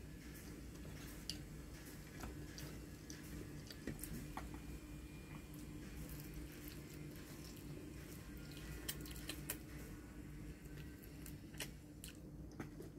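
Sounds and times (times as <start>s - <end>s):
steady low hum: 0.0s - 12.9s
soft chewing: 0.2s - 12.9s.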